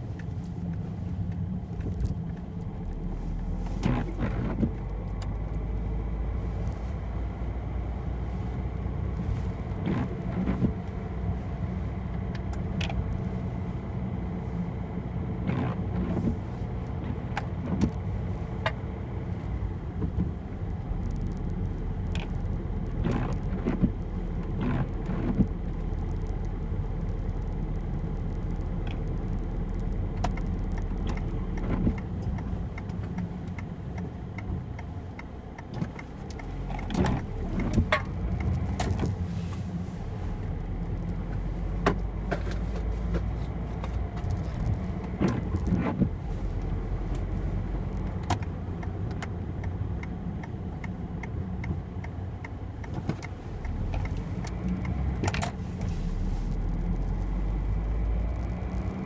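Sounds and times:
diesel car engine drone: 0.0s - 59.0s
interior clicks and knocks: 28.3s - 55.9s.

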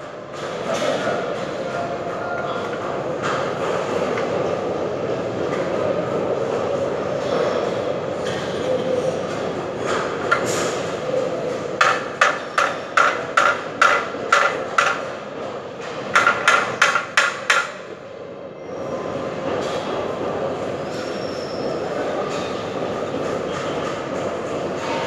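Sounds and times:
steady background hum: 0.0s - 25.0s
hammer strikes: 11.8s - 15.0s, 16.1s - 17.8s.

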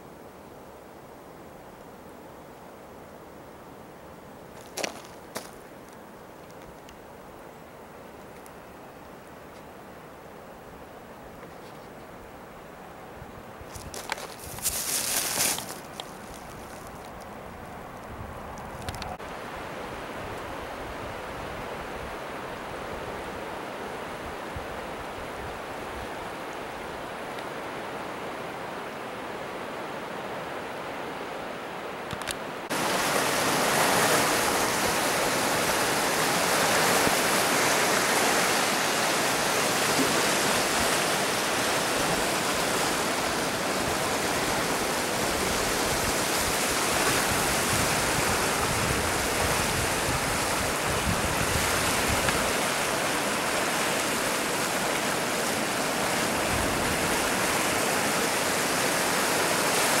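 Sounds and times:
soft hiss: 0.0s - 29.3s
floodwater rushing roar: 12.3s - 60.0s.

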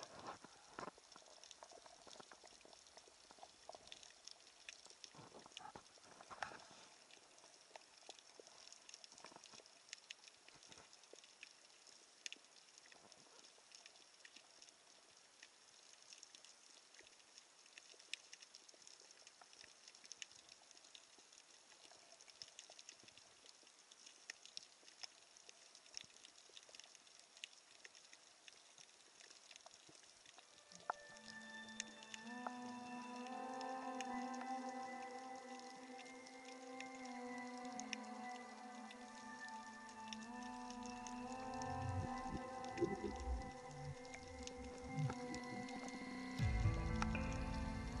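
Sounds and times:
underwater crackling clicks: 0.0s - 14.7s, 40.1s - 46.1s
soft hiss: 0.0s - 48.0s.

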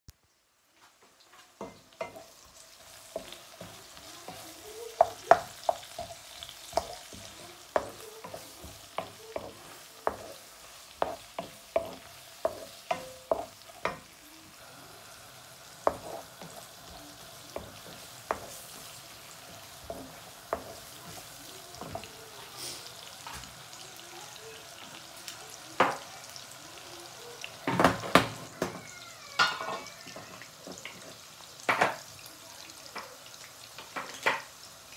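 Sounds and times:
food sizzling in a wok: 0.1s - 34.9s
wooden spatula scraping a pan: 1.7s - 14.1s, 15.8s - 17.0s, 17.6s - 23.0s.

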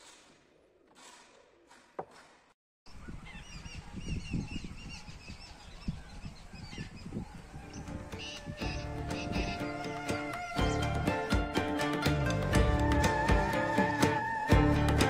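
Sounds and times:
wind buffeting microphone: 2.9s - 10.3s
birds chirping: 2.9s - 12.2s.

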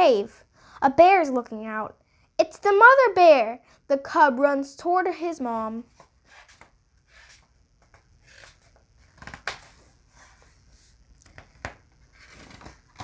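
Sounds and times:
paper pages rustling: 5.9s - 13.0s
sharp paper flicks: 6.0s - 9.8s.

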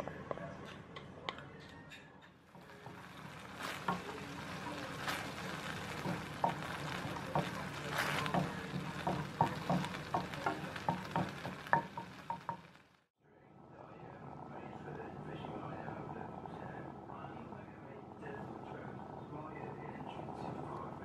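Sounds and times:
wooden spoon knocking on pan: 2.5s - 12.8s
sauce sizzling in a pan: 2.5s - 13.1s.

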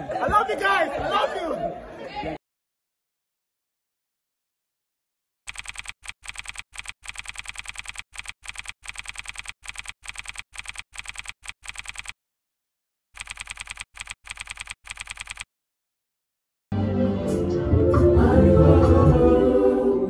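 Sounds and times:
keyboard key clicks: 5.5s - 12.1s, 13.2s - 15.4s.

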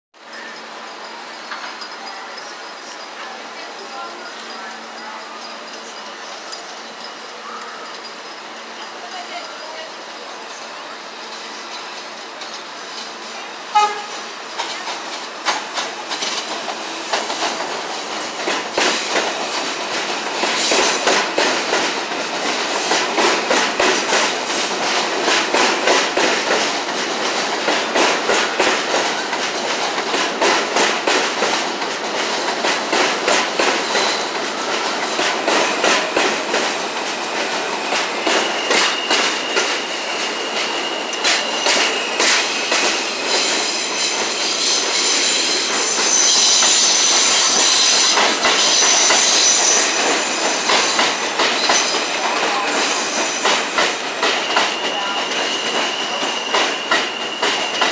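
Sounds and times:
wheels clicking over rail joints: 13.8s - 43.5s
high wheel squeal: 37.0s - 57.9s.

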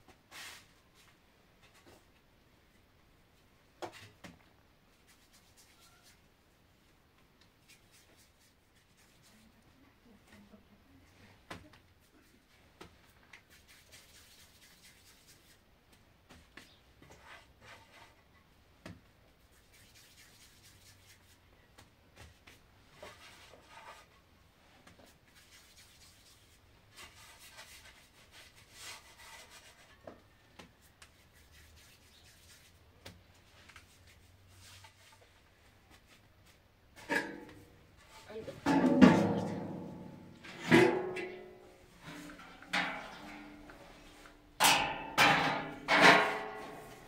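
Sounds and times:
faint rubbing and swishing: 19.3s - 21.5s, 22.3s - 36.7s, 41.4s - 44.5s.

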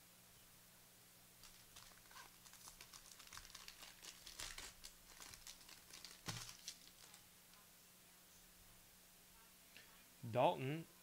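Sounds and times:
foil wrapper tearing and crinkling: 1.4s - 7.2s.

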